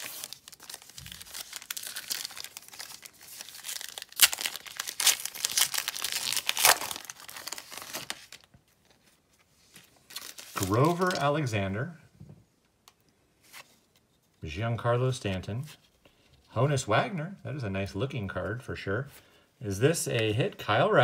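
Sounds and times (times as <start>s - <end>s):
foil wrapper ripping: 0.0s - 8.5s
foil wrapper crinkling: 0.0s - 9.0s, 10.1s - 11.4s.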